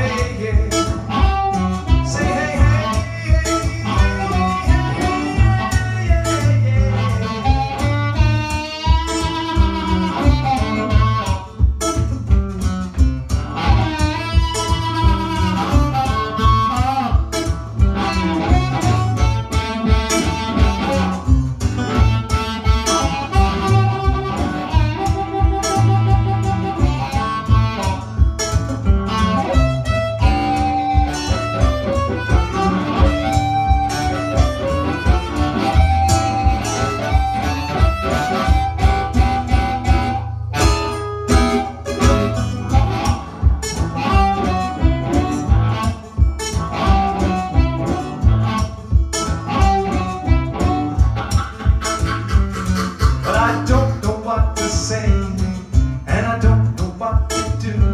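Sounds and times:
instrumental blues guitar: 0.0 - 57.9
steady beat: 0.0 - 57.9
lead instrument long notes: 21.9 - 28.0, 29.1 - 53.7.

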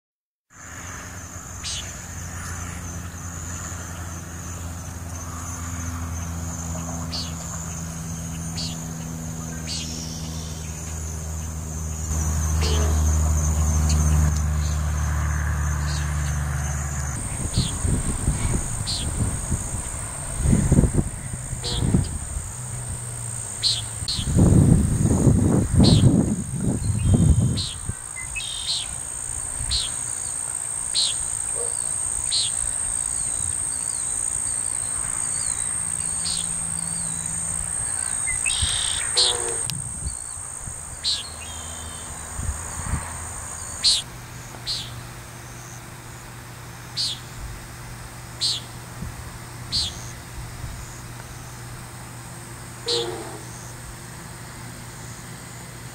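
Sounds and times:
high insect drone: 0.6 - 55.9
nighthawk peent calls: 6.2 - 14.8, 17.2 - 24.4, 26.8 - 40.4, 49.7 - 50.2, 52.8 - 53.8
loud low rumble: 16.7 - 23.2.

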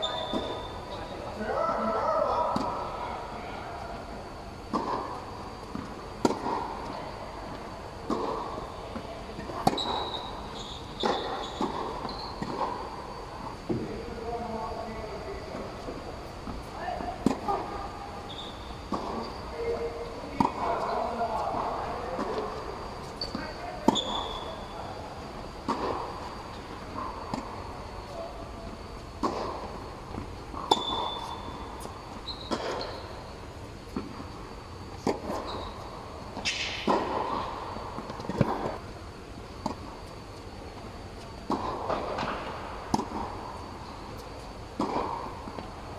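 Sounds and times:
tennis ball bouncing on court: 4.7 - 10.3, 22.1 - 24.4, 28.9 - 33.2, 36.4 - 45.7
racket striking tennis ball: 29.2 - 31.4, 36.4 - 38.8, 44.2 - 45.7.

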